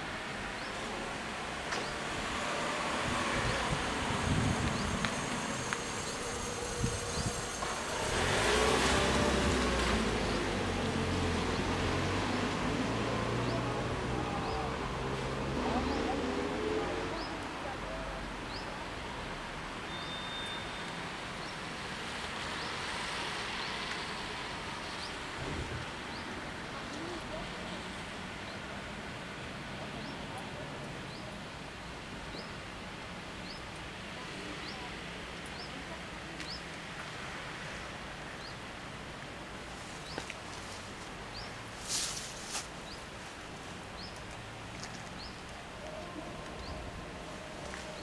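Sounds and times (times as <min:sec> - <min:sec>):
faint short high chirps: 0:19.9 - 0:20.9
thin whistle-like tone: 0:19.9 - 0:21.0.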